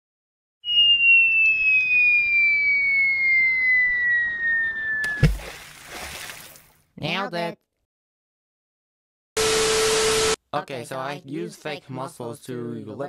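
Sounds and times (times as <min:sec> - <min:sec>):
cartoon falling whistle: 0:00.6 - 0:05.4
splash: 0:05.0 - 0:06.8
thump: 0:05.1 - 0:05.5.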